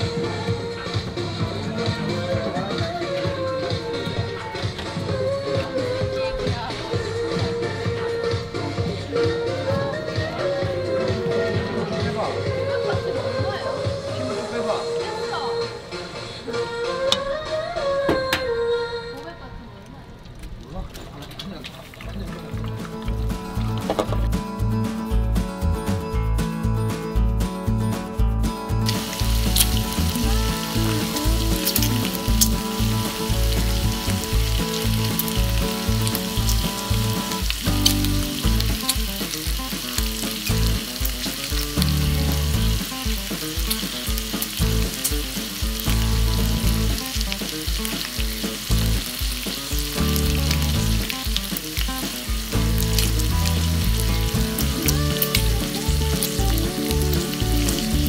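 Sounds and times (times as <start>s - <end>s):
oil popping: 20.2s - 24.9s, 28.8s - 58.0s
oil sizzling in a pan: 28.8s - 58.0s.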